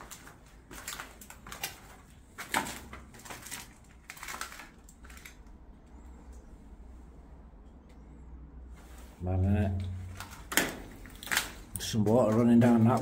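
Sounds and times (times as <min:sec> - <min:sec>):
footsteps crunching on debris: 0:00.0 - 0:05.4, 0:10.0 - 0:13.0.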